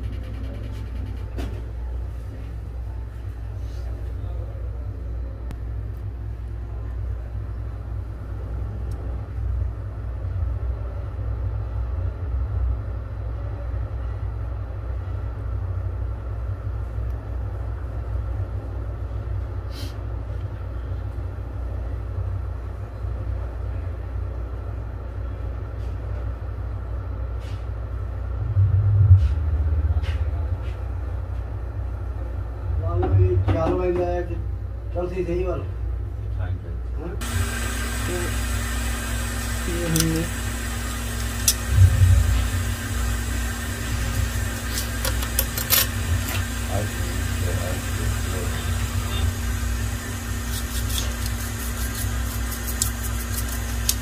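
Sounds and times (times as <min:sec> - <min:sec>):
faint fan tone: 0:00.0 - 0:54.0
hot-air gun blowing: 0:37.2 - 0:54.0.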